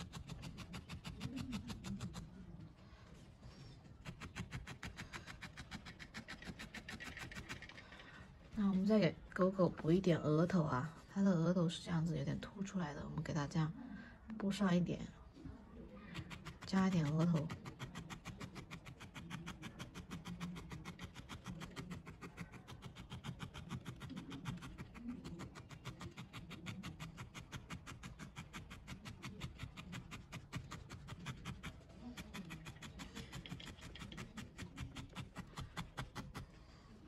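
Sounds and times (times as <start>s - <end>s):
felting needle stabbing into wool: 0.0s - 2.4s, 4.0s - 7.8s, 16.1s - 36.6s.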